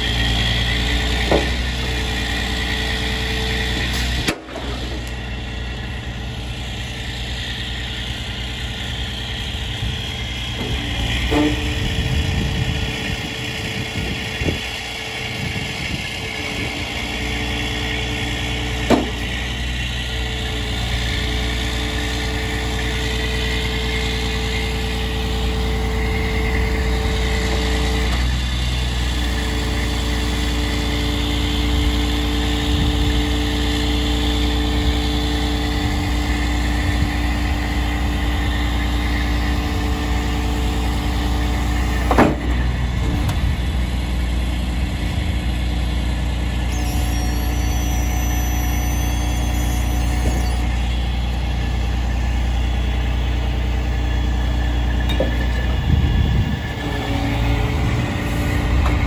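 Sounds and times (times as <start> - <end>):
hydraulic whine: 0.0 - 59.0
truck engine running: 0.0 - 59.0
sharp metal clunk: 3.8 - 5.0, 18.9 - 19.2, 42.0 - 42.6
high squeal: 6.8 - 13.1, 46.5 - 59.0.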